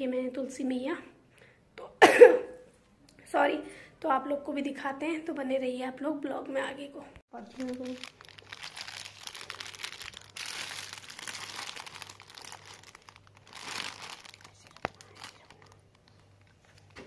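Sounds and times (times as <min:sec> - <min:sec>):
plastic wrapping crinkling: 0:07.4 - 0:17.0.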